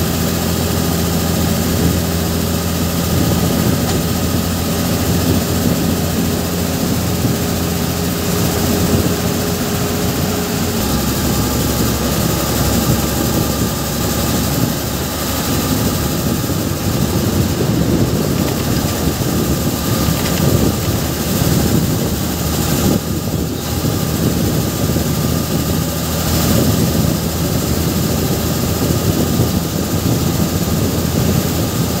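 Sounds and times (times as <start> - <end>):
large vehicle engine running: 0.0 - 32.0
road and wind noise: 0.0 - 32.0.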